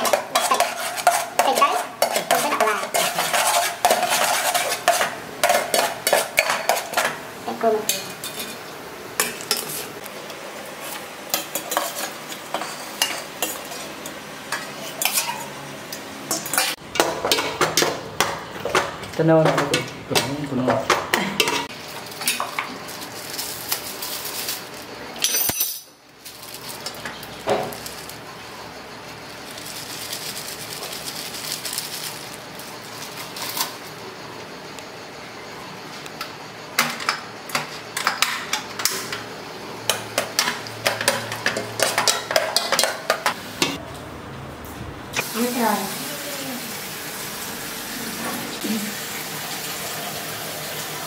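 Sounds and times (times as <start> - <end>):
fish frying in oil sizzling: 45.2 - 51.0.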